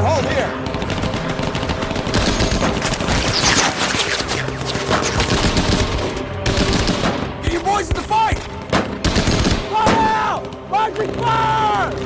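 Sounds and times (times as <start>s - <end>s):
machine-gun fire: 0.4s - 7.3s, 8.7s - 11.2s.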